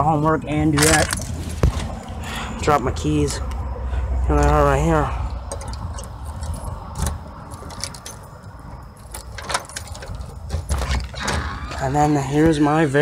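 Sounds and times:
keys jangling: 0.8s - 1.3s, 5.4s - 11.9s
lock clicking: 5.3s - 11.8s.

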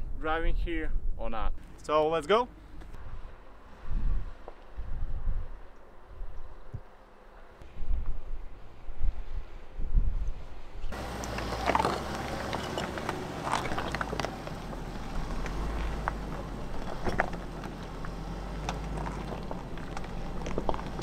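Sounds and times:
low engine rumble: 10.9s - 21.0s
rocks and gravel crunching under tyres: 10.9s - 21.0s.

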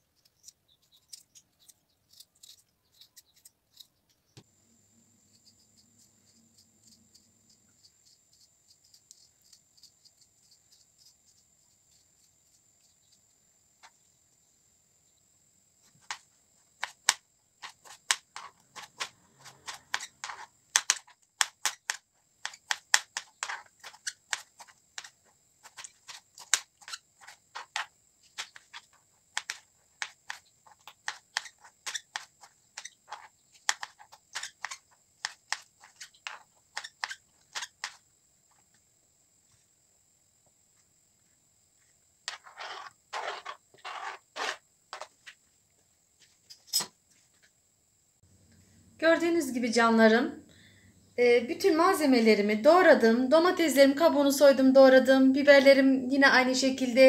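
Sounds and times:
faint high-pitched whine: 0.0s - 57.0s
knife chopping on plastic board: 16.8s - 25.1s, 25.7s - 28.8s, 29.4s - 38.0s.

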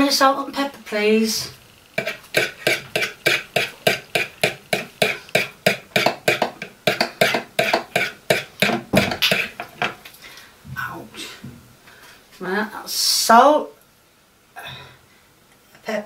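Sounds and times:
fork whisking eggs in plastic bowl: 1.2s - 10.0s.

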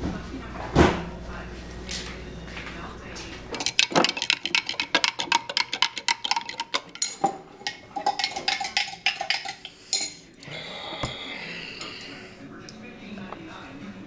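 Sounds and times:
spoon clinking against glass: 3.6s - 10.2s.

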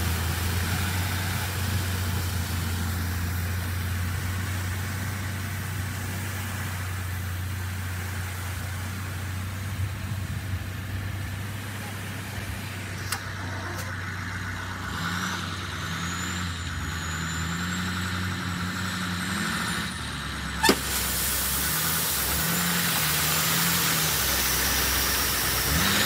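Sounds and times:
gravel pouring hiss: 0.0s - 13.0s, 20.6s - 26.0s
truck engine running: 0.0s - 26.0s.

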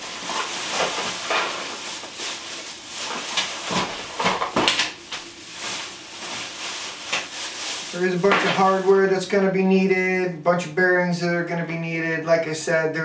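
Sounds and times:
paper and plastic bags rustling: 0.0s - 9.4s.

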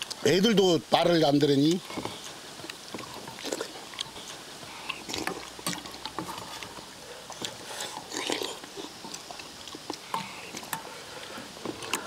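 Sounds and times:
slurping: 1.6s - 12.0s
chewing: 1.7s - 12.0s
utensils clicking on steel bowls: 7.4s - 11.0s.

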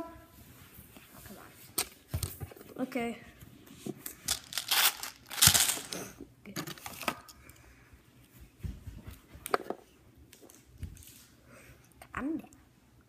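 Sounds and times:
plastic wrapper crinkling: 4.3s - 6.1s.

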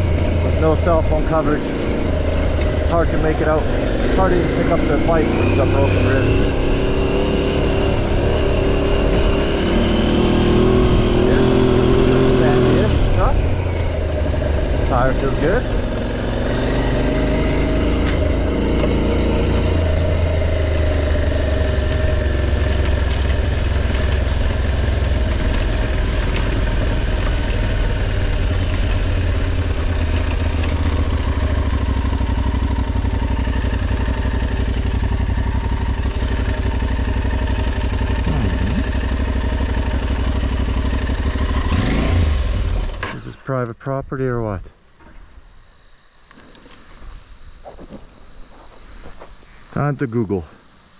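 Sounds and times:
motorcycle engine running: 0.0s - 43.2s
knocks and rattles: 22.5s - 31.2s.

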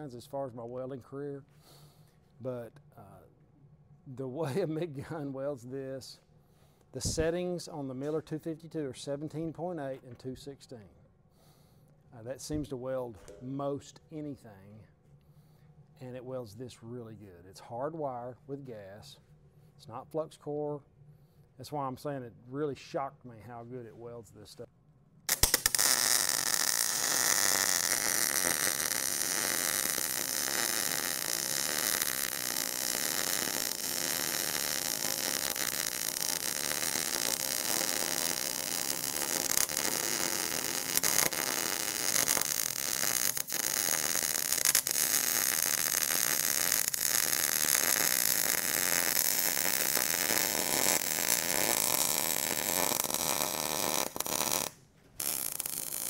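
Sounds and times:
welding arc crackle and hiss: 25.3s - 56.0s.

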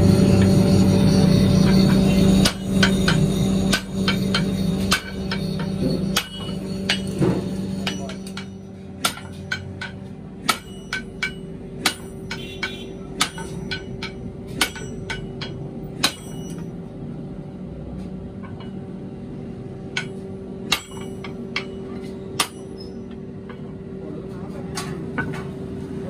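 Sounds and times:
sledgehammer ringing on anvil: 0.0s - 16.7s, 19.9s - 23.7s
steady hum: 0.0s - 26.0s.

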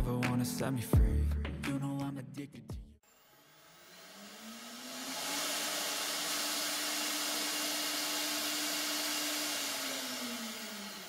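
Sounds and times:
spindle motor whine: 3.1s - 11.0s.

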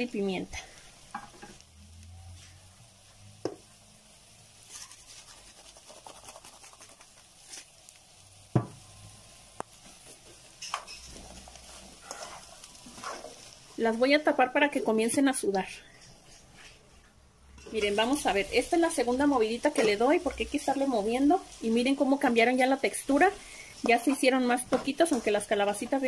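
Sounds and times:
vegetables sizzling in a frying pan: 0.0s - 15.8s, 17.5s - 26.0s
utensil stirring: 4.6s - 7.7s, 10.2s - 13.8s, 17.6s - 26.0s.

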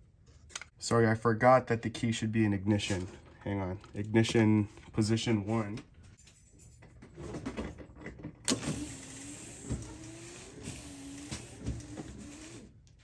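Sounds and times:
electric fuel pump whirring: 8.4s - 12.7s.

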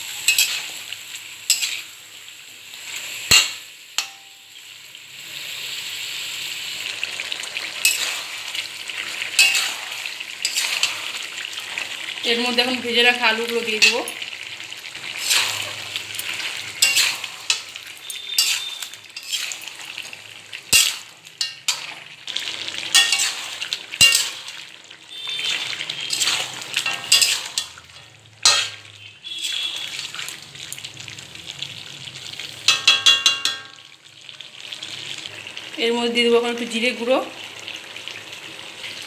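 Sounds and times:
metal spatula scraping pan: 0.0s - 1.9s, 7.8s - 8.6s, 9.2s - 11.3s, 15.0s - 22.1s, 22.7s - 24.6s, 25.2s - 30.1s
food sizzling in oil: 0.0s - 39.0s.

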